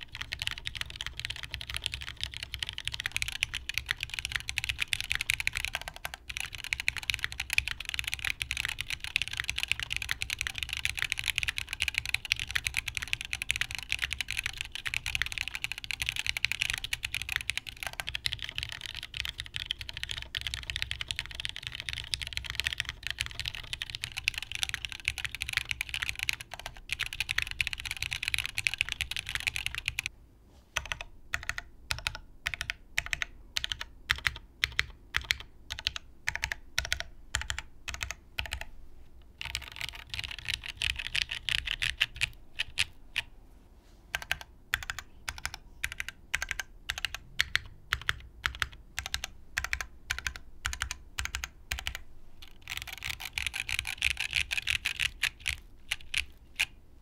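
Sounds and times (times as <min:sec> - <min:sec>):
fast typing on mechanical keyboard: 0:00.0 - 0:30.1, 0:30.8 - 0:38.7, 0:39.4 - 0:43.3, 0:44.1 - 0:56.8.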